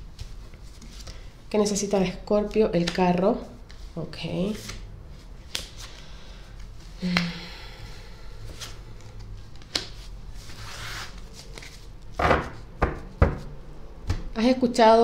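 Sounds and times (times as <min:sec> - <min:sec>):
cards sliding on cloth: 0:09.7 - 0:11.8.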